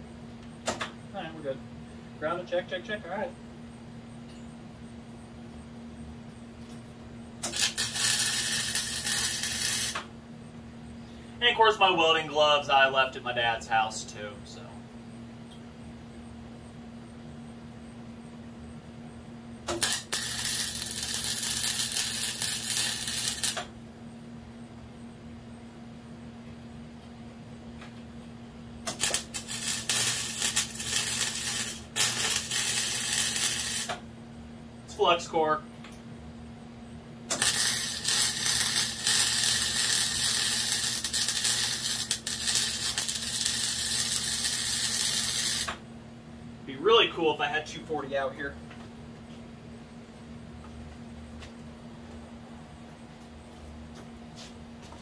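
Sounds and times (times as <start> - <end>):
welding arc crackling: 7.4 - 10.1, 19.6 - 23.8, 28.8 - 34.0, 37.3 - 45.8.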